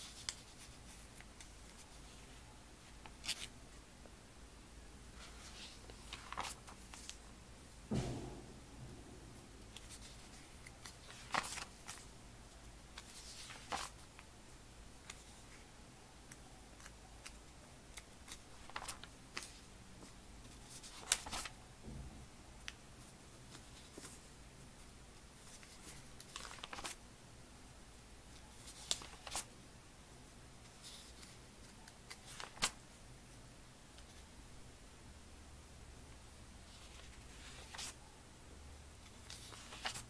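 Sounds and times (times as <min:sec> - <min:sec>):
paper pages rustling: 0:00.0 - 0:03.5, 0:05.2 - 0:07.2, 0:09.7 - 0:12.1, 0:13.0 - 0:14.3, 0:16.8 - 0:21.5, 0:23.5 - 0:24.2, 0:25.4 - 0:27.0, 0:28.6 - 0:29.5, 0:30.6 - 0:31.4, 0:32.1 - 0:32.8, 0:36.7 - 0:38.0, 0:39.0 - 0:40.0.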